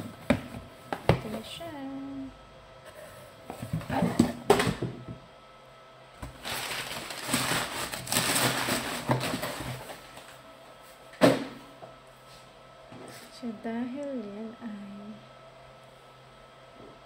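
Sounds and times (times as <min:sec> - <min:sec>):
packaging rustling: 0:06.2 - 0:10.3.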